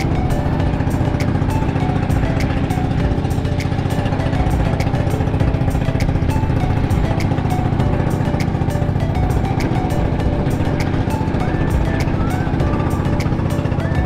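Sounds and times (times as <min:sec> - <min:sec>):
engine running steadily: 0:00.0 - 0:14.0.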